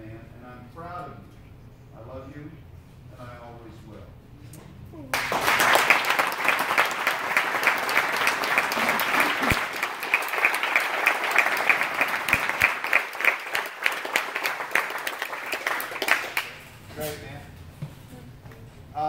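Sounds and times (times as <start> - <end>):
audience applauding: 5.1 - 16.7.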